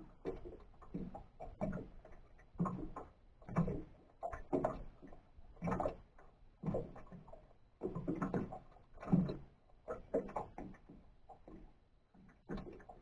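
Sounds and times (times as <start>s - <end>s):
water slapping boat hull: 0.0s - 13.0s.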